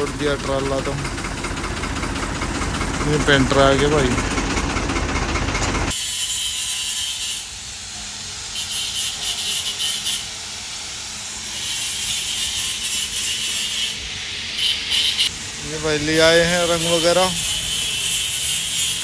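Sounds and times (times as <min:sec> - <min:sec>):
tractor engine idling: 0:00.0 - 0:05.9, 0:14.6 - 0:18.8
hissing scraping of scrubbing: 0:08.5 - 0:15.3.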